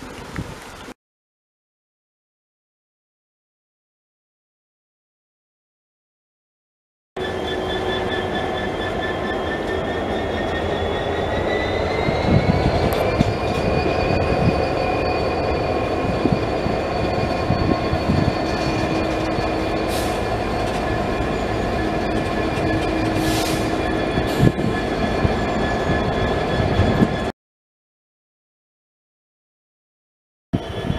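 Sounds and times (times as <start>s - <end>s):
diesel locomotive engines: 7.2s - 27.3s, 30.6s - 30.9s.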